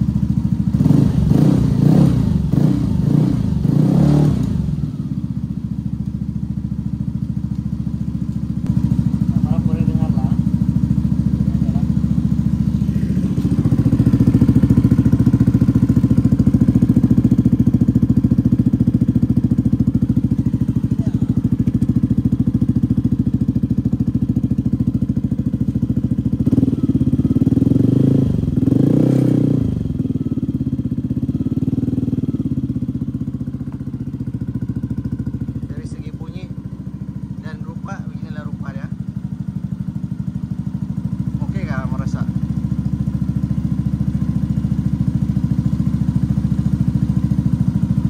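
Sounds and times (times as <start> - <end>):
scooter engine idling and revving: 0.0 - 48.0.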